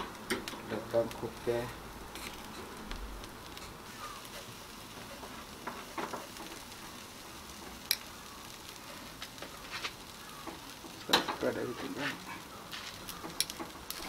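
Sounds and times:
chicken sizzling on grill: 0.0s - 14.0s
metal tongs clicking on grill: 7.8s - 8.1s, 13.0s - 14.0s.

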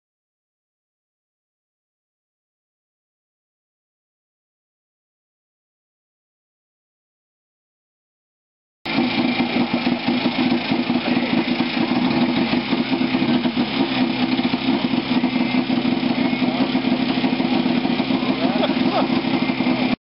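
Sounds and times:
snowmobile engine idling: 8.9s - 20.0s.

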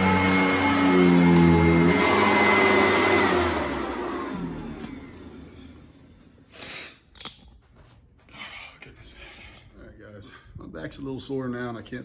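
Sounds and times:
vacuum motor winding down: 0.0s - 6.1s.

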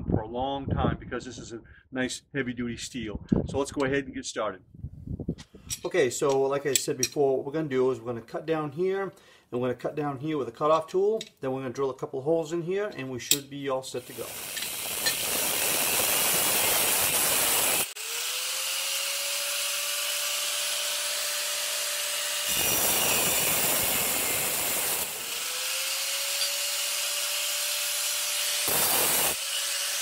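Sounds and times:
angle grinder cutting steel: 14.0s - 30.0s
grinder motor whining: 14.4s - 30.0s.

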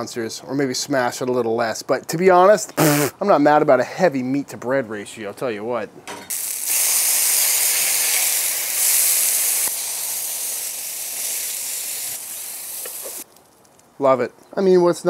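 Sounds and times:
burger patties sizzling on griddle: 6.3s - 13.3s.

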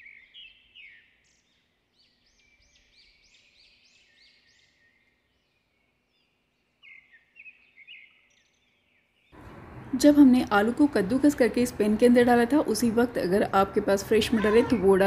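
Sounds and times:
faint bird chirping: 0.0s - 10.2s.

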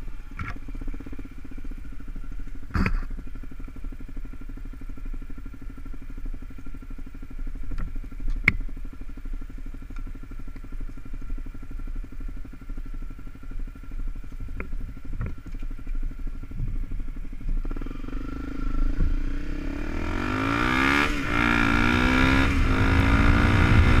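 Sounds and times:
rush of wind and road noise: 14.4s - 24.0s
motorcycle engine revving: 16.2s - 24.0s.

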